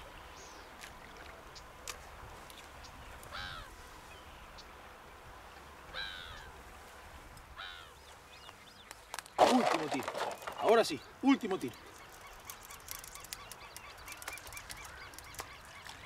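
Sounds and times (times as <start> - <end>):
faint outdoor background noise: 0.0 - 16.0
bird calling: 2.8 - 3.8, 5.9 - 6.6, 7.6 - 16.0.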